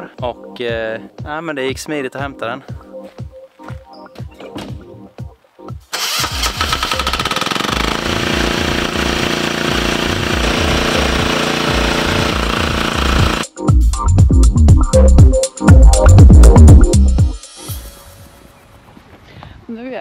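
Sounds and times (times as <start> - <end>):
diesel engine starting and chugging: 5.9 - 13.5.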